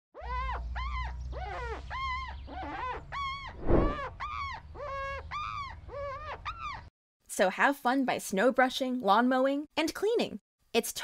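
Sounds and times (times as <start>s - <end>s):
small dog yipping and whimpering: 0.2s - 6.9s.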